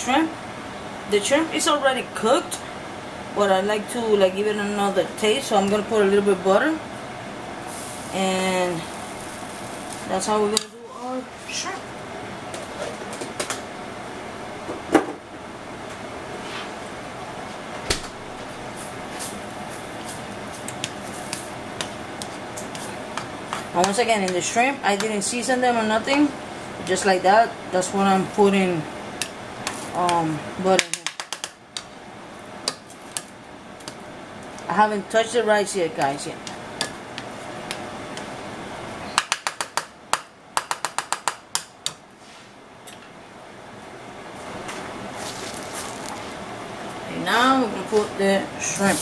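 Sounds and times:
butter sizzling in a pan: 7.7 - 10.2
sharp pops and clicks: 30.8 - 31.9.

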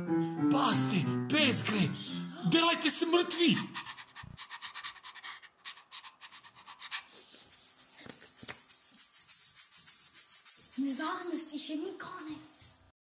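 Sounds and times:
dog panting: 2.8 - 11.5.

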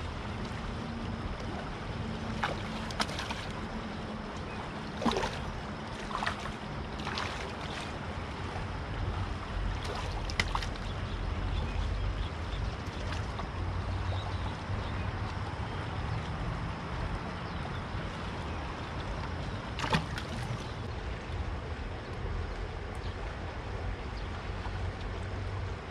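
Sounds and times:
river water: 0.0 - 25.9
wind: 0.0 - 25.9.

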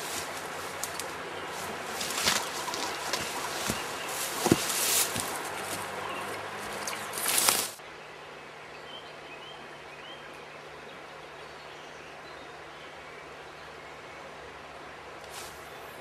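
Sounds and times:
twigs snapping: 0.0 - 5.9, 6.6 - 7.8
footsteps in bushes: 0.0 - 7.8
leaves and twigs rustling: 0.0 - 7.8, 15.2 - 16.0.

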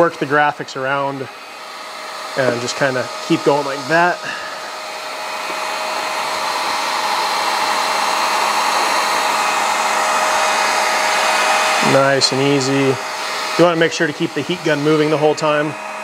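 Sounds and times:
heat gun blowing hot air: 0.0 - 16.0.

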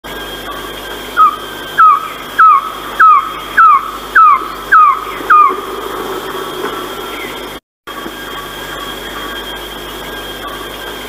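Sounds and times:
bird calling falling notes: 1.2 - 7.6.

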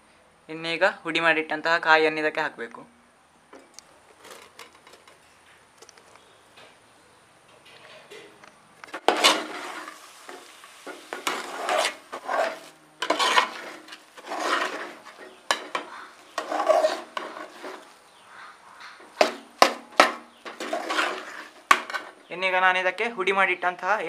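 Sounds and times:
spoon scraping in thick syrup: 8.9 - 18.1, 20.3 - 22.2.

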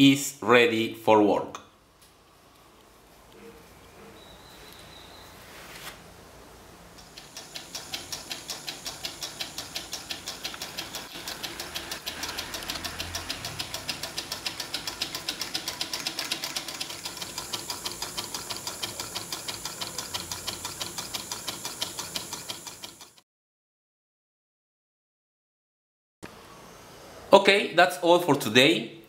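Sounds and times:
small engine crank clicking: 7.0 - 23.2.

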